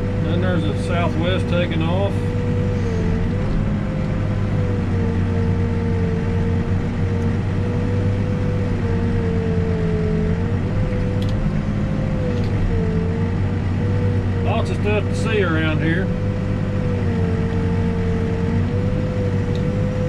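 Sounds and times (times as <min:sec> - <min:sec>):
diesel engine running: 0:00.0 - 0:20.0.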